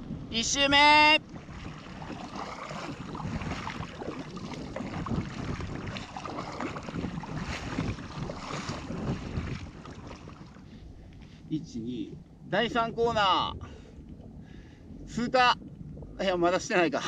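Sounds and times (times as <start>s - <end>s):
wind noise on microphone: 0.0s - 17.0s
paddle splashing in water: 1.2s - 10.8s.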